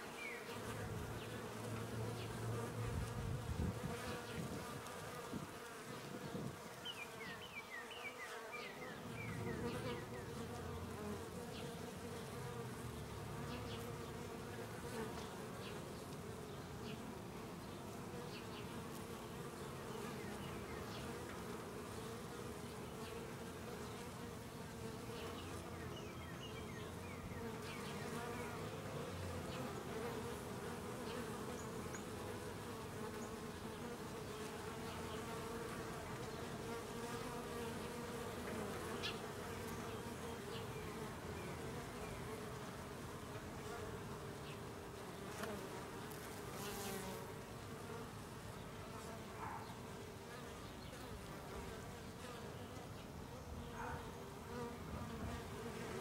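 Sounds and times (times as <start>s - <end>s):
bees buzzing: 0.0s - 53.6s.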